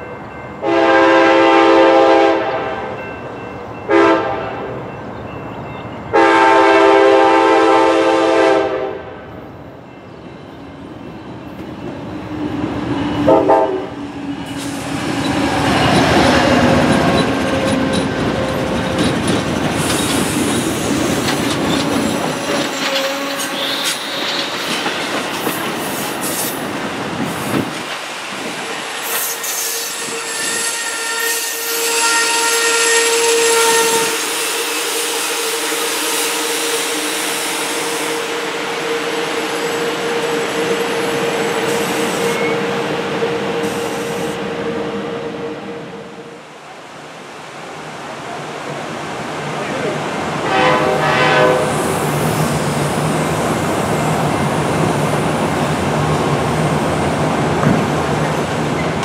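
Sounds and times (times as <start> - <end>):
train wheels rumbling on rail: 1.7 - 46.2, 48.9 - 59.0
high wheel squeal: 19.8 - 24.8, 28.5 - 38.2, 39.2 - 44.9.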